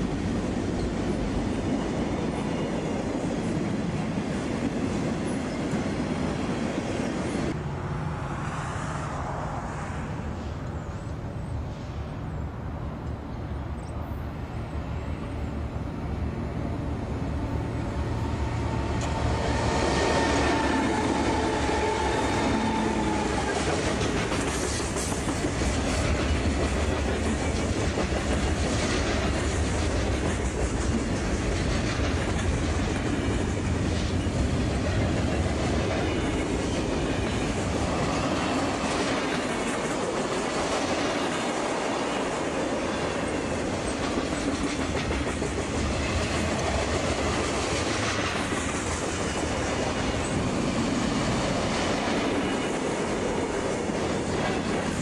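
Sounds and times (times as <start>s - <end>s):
diesel locomotive engine: 0.0s - 55.0s
freight train wheel clatter: 18.6s - 55.0s.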